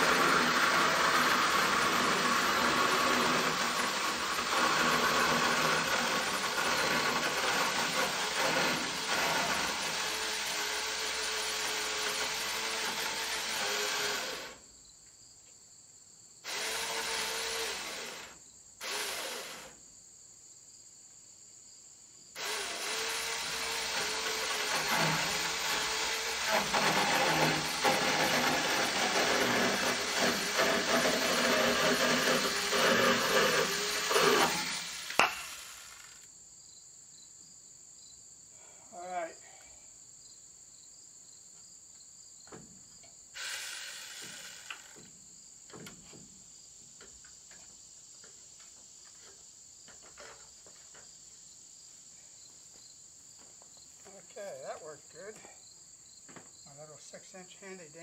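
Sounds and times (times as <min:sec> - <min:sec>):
chainsaw cutting timber: 0:00.0 - 0:14.6, 0:16.4 - 0:19.8, 0:22.4 - 0:36.3, 0:43.4 - 0:45.1
crickets chirping: 0:06.0 - 0:28.0, 0:34.7 - 0:58.0.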